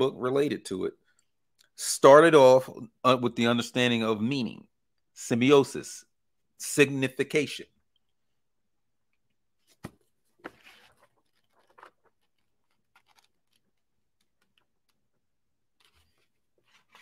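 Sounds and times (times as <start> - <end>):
paper pages rustling: 9.6 - 17.0.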